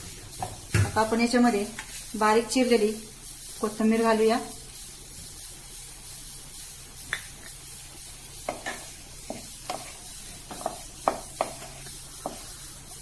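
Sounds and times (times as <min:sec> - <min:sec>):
faint sizzle: 0:00.0 - 0:13.0
wooden spatula scraping steel pan: 0:08.4 - 0:13.0.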